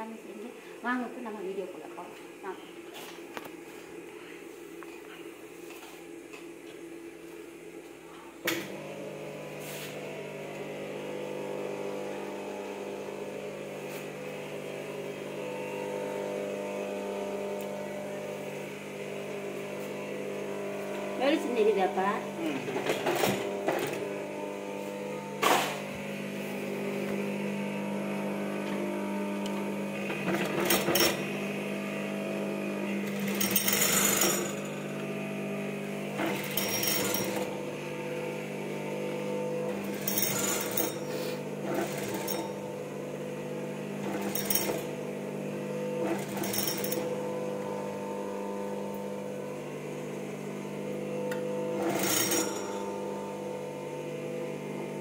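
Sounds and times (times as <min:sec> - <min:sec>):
sewing machine motor humming: 0:14.6 - 0:55.0
sewing machine stitching: 0:30.0 - 0:31.2, 0:36.2 - 0:37.6, 0:39.7 - 0:42.6, 0:44.0 - 0:44.9, 0:46.0 - 0:47.1, 0:51.8 - 0:52.7.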